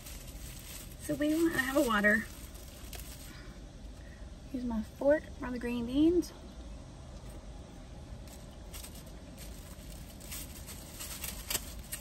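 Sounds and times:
plastic wrapper crinkling: 0.0s - 3.4s, 8.2s - 12.0s.

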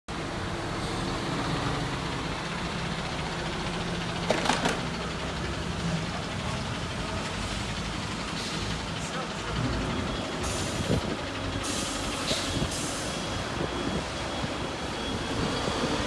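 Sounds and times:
diesel truck engine running: 0.1s - 16.0s
sharp clatter: 4.2s - 5.1s.

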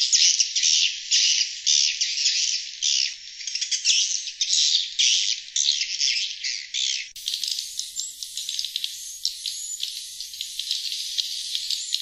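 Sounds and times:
birds twittering chorus: 1.9s - 12.0s.

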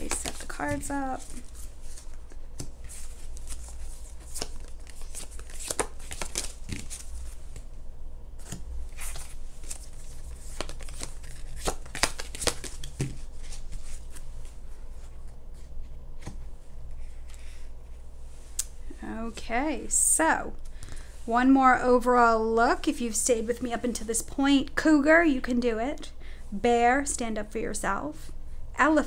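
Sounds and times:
cards snapping and slapping: 0.0s - 0.8s, 3.4s - 7.1s, 8.4s - 14.2s
steady low hum: 0.0s - 29.0s.

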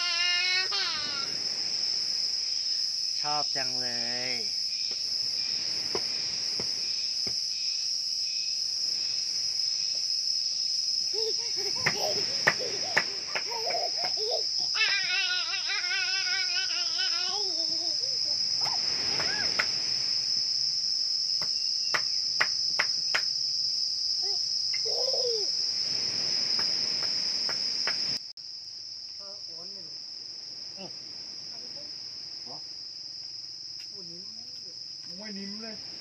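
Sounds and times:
insect trill: 0.0s - 36.0s.

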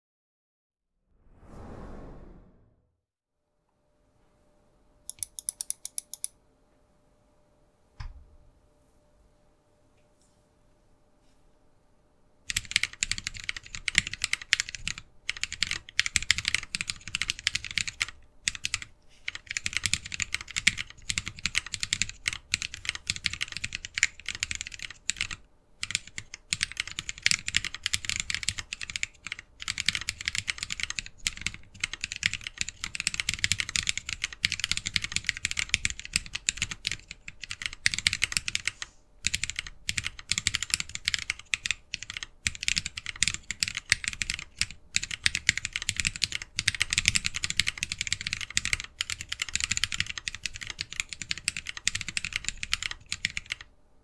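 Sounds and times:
mechanical keyboard typing: 5.1s - 6.3s, 12.5s - 53.7s.

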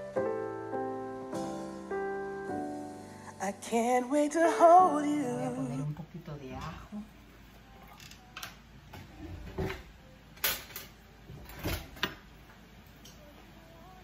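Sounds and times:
kitchen drawer pulled open: 9.0s - 9.9s, 11.4s - 12.1s.

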